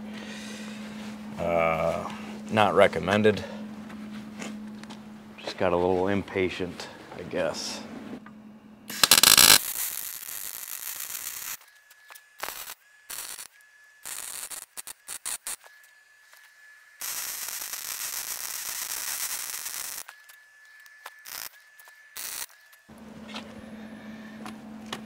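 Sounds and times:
welder arc crackling: 8.9s - 16.4s, 17.0s - 22.9s.

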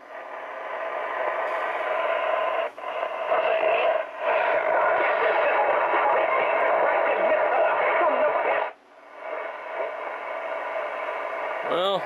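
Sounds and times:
distorted radio audio: 0.1s - 12.0s.

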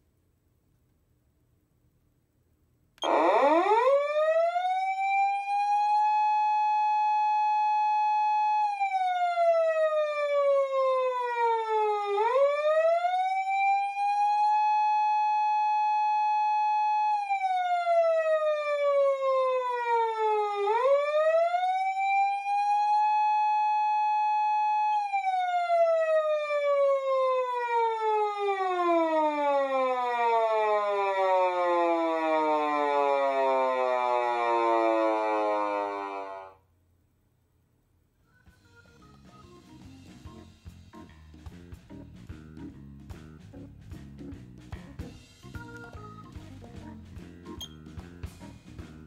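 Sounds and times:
police siren wailing: 3.0s - 36.6s.

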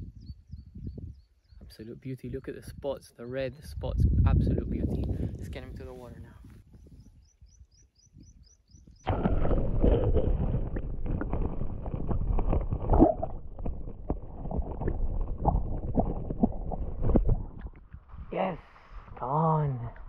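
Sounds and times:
muffled churning underwater: 9.1s - 18.1s.

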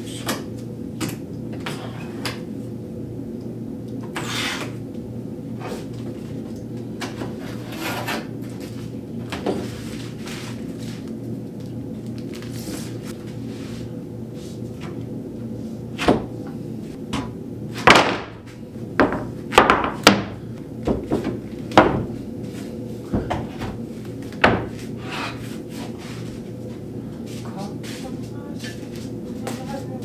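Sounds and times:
steady low hum: 0.0s - 30.0s
wooden boards knocking: 19.0s - 22.1s.

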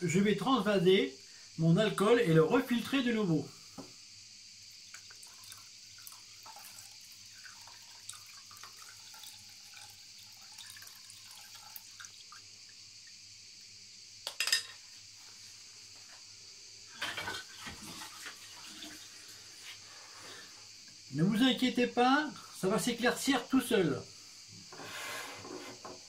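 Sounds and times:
liquid trickling into saucepan: 4.9s - 13.2s, 17.0s - 19.4s.

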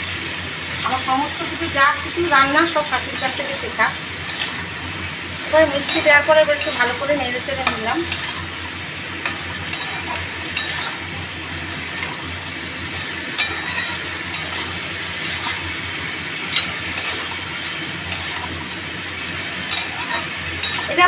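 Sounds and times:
frying sizzle: 0.0s - 21.0s
metal spoon clinking against pan: 3.0s - 3.7s, 5.7s - 8.5s, 9.2s - 11.1s, 13.3s - 15.7s, 16.4s - 18.5s, 19.6s - 21.0s.

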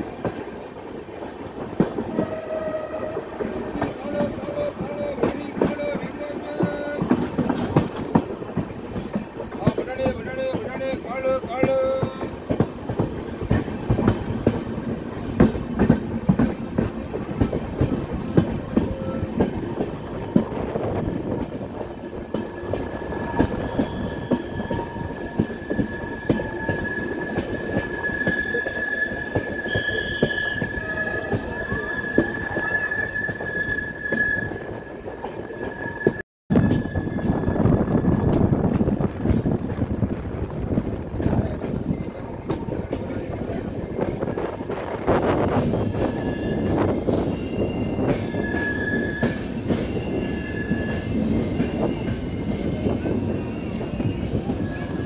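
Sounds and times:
train wheels clattering: 0.0s - 55.0s
high wheel squeal: 22.5s - 38.1s, 45.2s - 55.0s.

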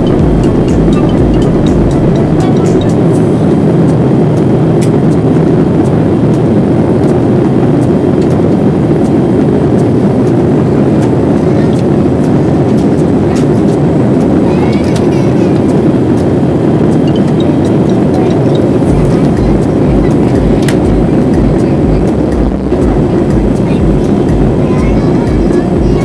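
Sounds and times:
airplane cabin roar: 0.0s - 26.0s.

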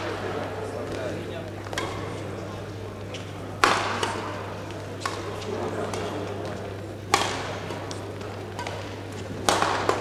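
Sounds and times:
rackets hitting shuttlecock: 1.6s - 2.2s, 3.1s - 10.0s.

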